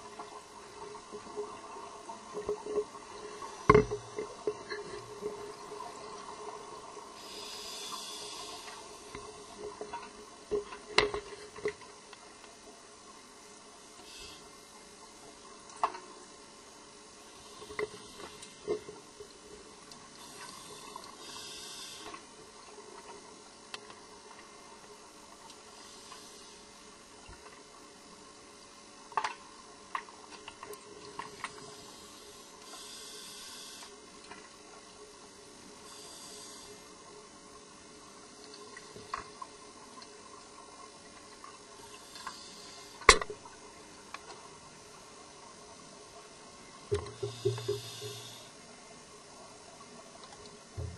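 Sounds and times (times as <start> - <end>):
faint underwater hiss: 0.0 - 50.9
regulator breathing gas hiss: 7.2 - 9.3, 14.0 - 14.6, 17.2 - 18.8, 20.1 - 22.3, 25.7 - 26.9, 31.3 - 34.0, 35.8 - 37.0, 41.8 - 43.2, 47.0 - 48.6
small liquid clicks: 7.9 - 12.6, 15.4 - 16.2, 17.6 - 26.3, 28.6 - 32.0, 38.3 - 44.6, 49.7 - 50.9.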